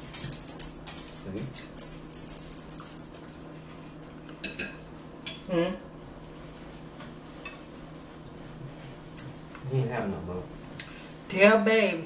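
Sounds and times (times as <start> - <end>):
forks clinking on plates: 0.0 - 3.6, 4.4 - 5.4
low room hum: 0.0 - 12.0.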